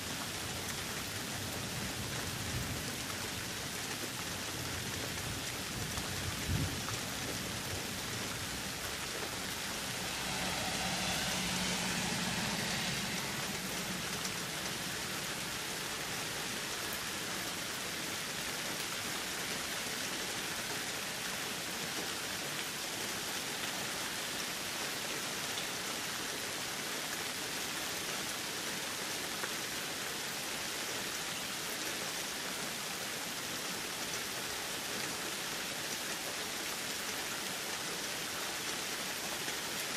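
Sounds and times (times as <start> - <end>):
steady rain falling: 0.0 - 39.9
low rumble: 6.0 - 17.3.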